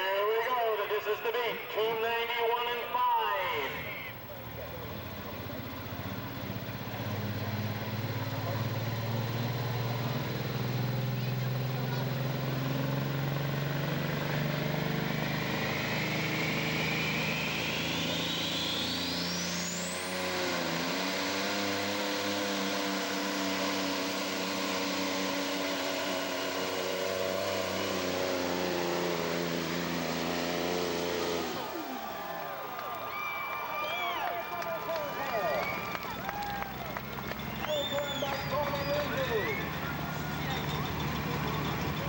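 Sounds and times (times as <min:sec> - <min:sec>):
turbocharger whine: 0:00.0 - 0:42.0
truck diesel engine under load: 0:02.7 - 0:42.0.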